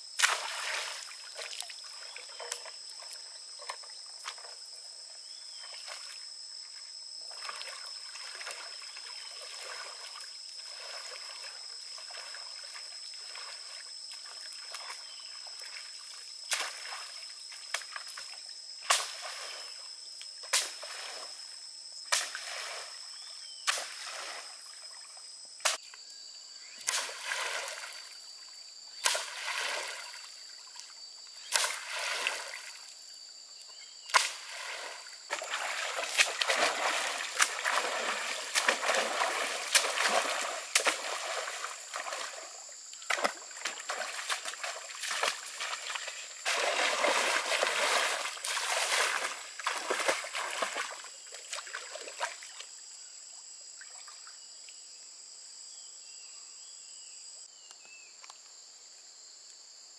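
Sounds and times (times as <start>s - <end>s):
high-pitched insect drone: 0.0s - 54.4s
pole splashing into water: 0.2s - 1.7s, 29.0s - 30.2s, 31.5s - 32.8s, 34.1s - 52.4s
water sloshing from wading: 34.1s - 52.6s.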